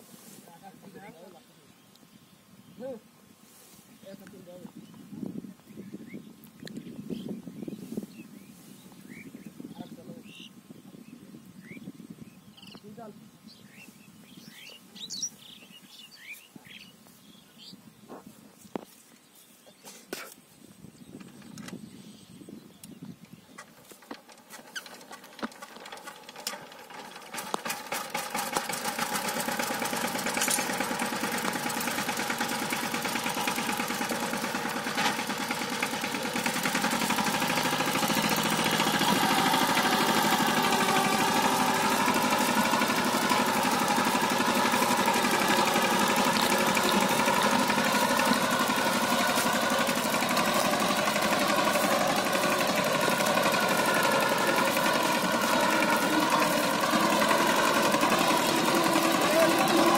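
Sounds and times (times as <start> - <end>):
diesel engine running: 25.0 - 59.9.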